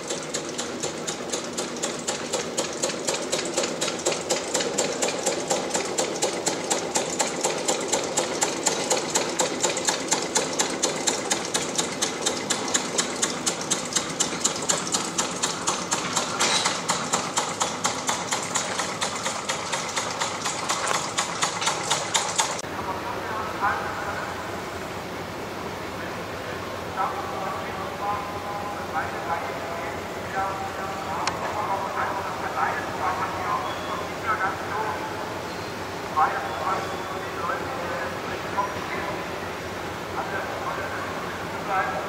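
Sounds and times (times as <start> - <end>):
engine knocking slowly: 0.0 - 22.6.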